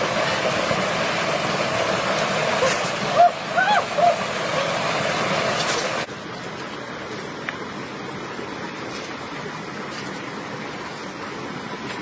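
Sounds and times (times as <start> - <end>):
stream water rushing: 0.0 - 12.0.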